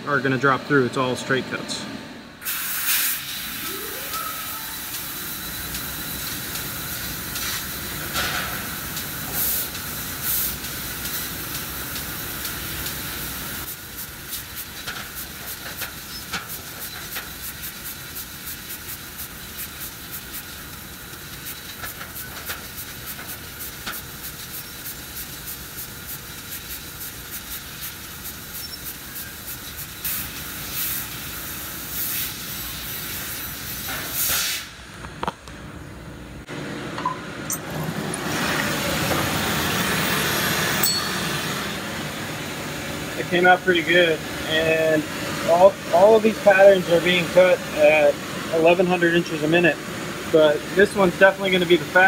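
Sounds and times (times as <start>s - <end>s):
gas hissing from laser cutting head: 2.4s - 34.7s.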